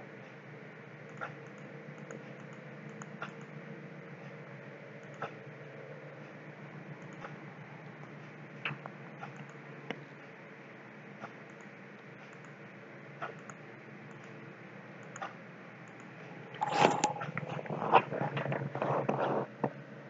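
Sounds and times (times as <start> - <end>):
steady low hum: 0.0 - 20.0
computer mouse clicks: 1.1 - 3.6, 5.0 - 5.4, 7.0 - 7.4, 8.0 - 9.6, 11.2 - 12.6, 13.2 - 14.4, 15.0 - 19.4.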